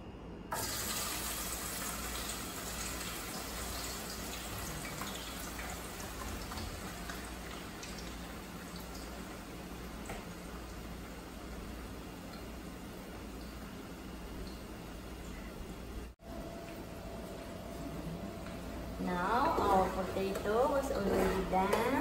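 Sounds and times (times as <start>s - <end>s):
potato strips sizzling in oil: 0.5s - 14.2s.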